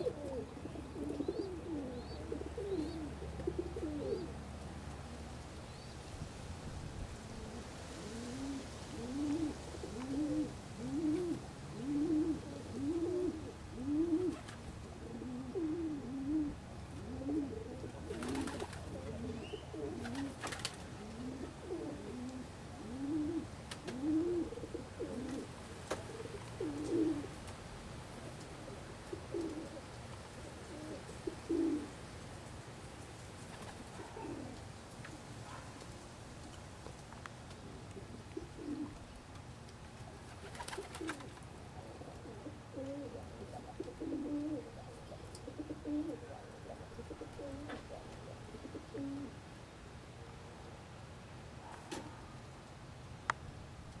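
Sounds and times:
pigeons cooing: 0.0s - 5.4s, 7.2s - 27.4s, 28.2s - 32.0s, 33.5s - 35.6s, 37.7s - 39.2s, 40.0s - 49.4s.

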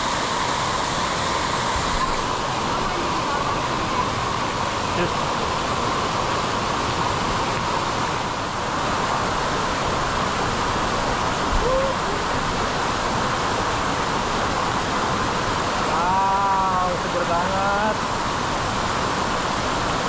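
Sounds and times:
person's voice: 15.9s - 18.0s.

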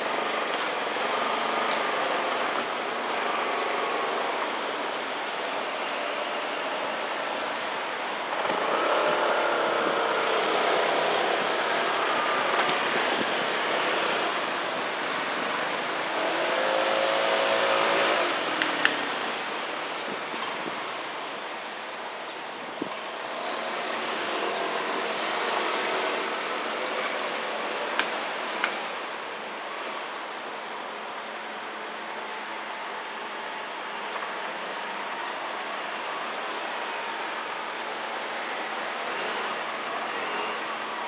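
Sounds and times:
cars passing by: 0.0s - 41.0s.

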